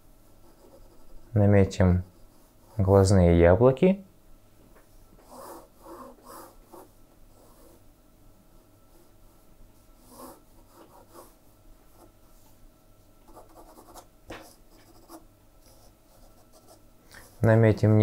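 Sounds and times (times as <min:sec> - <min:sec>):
pencil scratching on paper: 0:00.4 - 0:01.3, 0:05.2 - 0:07.8, 0:10.0 - 0:11.4, 0:13.3 - 0:17.5.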